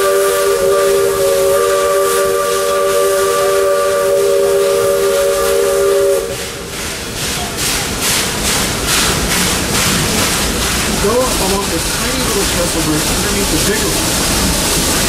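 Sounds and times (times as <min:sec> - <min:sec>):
steam locomotive whistle: 0:00.0 - 0:06.8
steam engine exhaust chuffing: 0:00.0 - 0:15.0.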